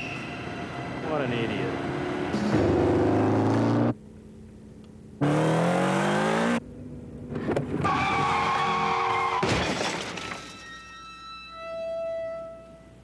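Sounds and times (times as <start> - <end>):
motorcycle engine revving: 1.7 - 4.0, 5.2 - 6.6
tyres skidding: 7.3 - 10.7.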